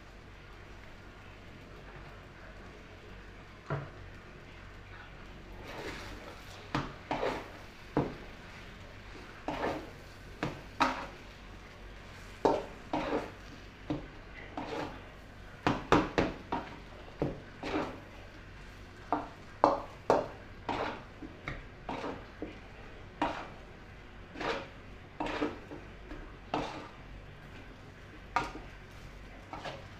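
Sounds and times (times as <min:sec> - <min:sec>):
metal spoon scraping wok: 0:07.1 - 0:07.6, 0:09.4 - 0:10.1, 0:12.5 - 0:13.4, 0:14.5 - 0:15.0, 0:17.6 - 0:18.0, 0:20.7 - 0:21.1, 0:21.9 - 0:22.3, 0:24.3 - 0:25.7, 0:26.5 - 0:27.0.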